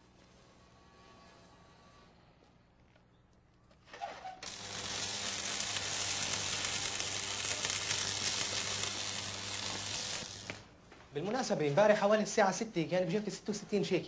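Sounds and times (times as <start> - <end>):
arc welding crackles and sizzling: 4.2 - 12.1.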